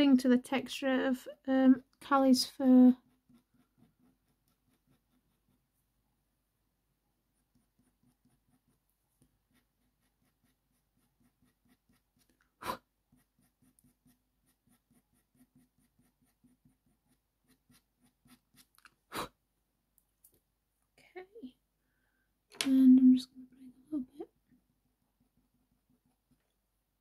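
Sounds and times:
faint scraping strokes on paper: 2.5s - 6.0s, 7.2s - 18.8s.

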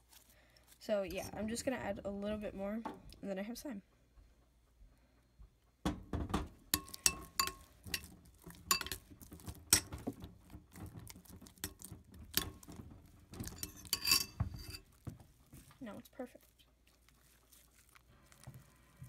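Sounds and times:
fingers kneading sticky slime: 14.8s - 19.0s.

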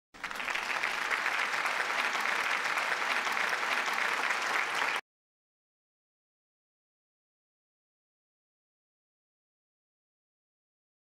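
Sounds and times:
crowd applauding: 0.2s - 5.0s.

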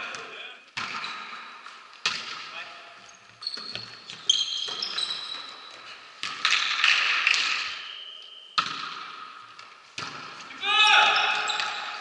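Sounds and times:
sneakers squeaking on court floor: 2.1s - 8.8s, 9.9s - 12.0s.

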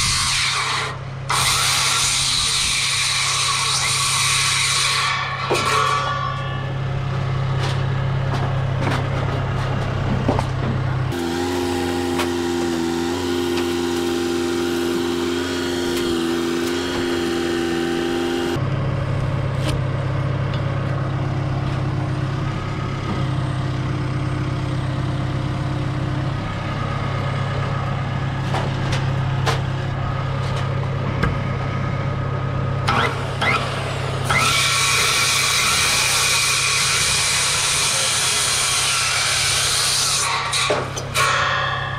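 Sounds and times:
circular saw cutting wood: 0.0s - 7.5s, 11.1s - 18.6s, 32.8s - 41.9s
boom lift engine running: 0.8s - 41.9s.

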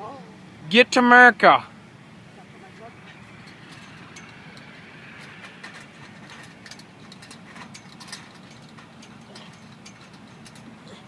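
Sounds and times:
steady low hum: 0.0s - 11.0s
chain-link fence rattling: 2.7s - 11.0s.

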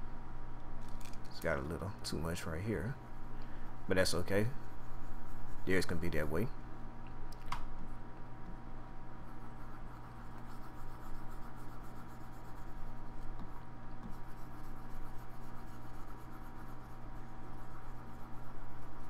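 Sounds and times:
electrical hum: 0.0s - 19.0s
mouse rubbing on desk: 3.8s - 6.3s, 9.2s - 19.0s.

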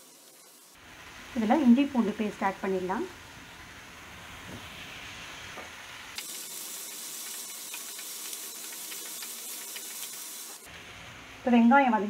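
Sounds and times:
onions sizzling in hot oil: 0.0s - 12.0s
spatula clicking in pan: 6.8s - 10.4s.

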